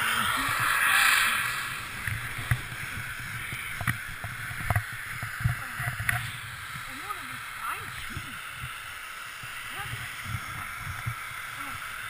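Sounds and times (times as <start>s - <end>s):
wind buffeting microphone: 0.0s - 8.7s
skis scraping over snow: 0.0s - 12.0s.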